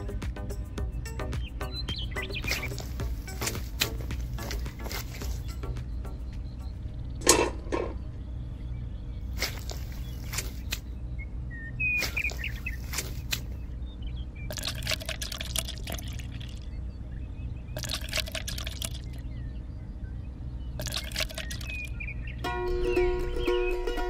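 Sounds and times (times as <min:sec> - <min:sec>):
low steady hum: 0:00.0 - 0:24.0
water trickling onto sand: 0:09.3 - 0:10.8, 0:14.5 - 0:16.6, 0:17.8 - 0:19.2, 0:20.8 - 0:21.9.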